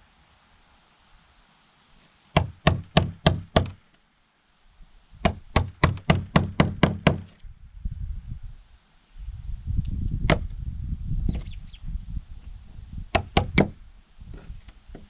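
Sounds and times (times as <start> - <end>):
hammer driving nails into wood: 2.4 - 3.8, 5.2 - 7.4, 13.2 - 13.8.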